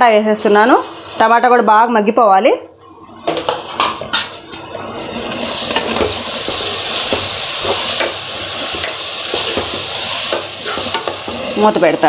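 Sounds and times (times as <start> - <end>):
food sizzling in hot oil: 0.0 - 2.1, 2.9 - 12.0
metal spoon stirring and scraping: 3.4 - 12.0.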